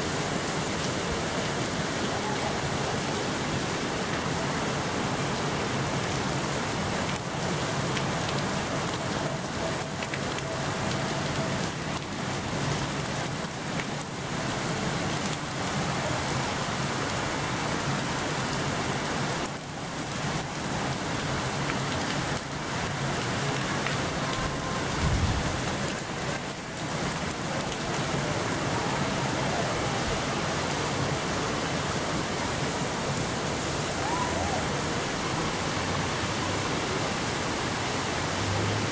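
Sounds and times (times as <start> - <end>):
water pouring off waterwheel: 0.0 - 38.9.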